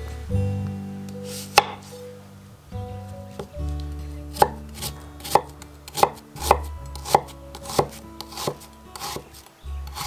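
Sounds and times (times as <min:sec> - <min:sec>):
knife chopping on wooden board: 0:01.5 - 0:01.8, 0:04.3 - 0:09.2.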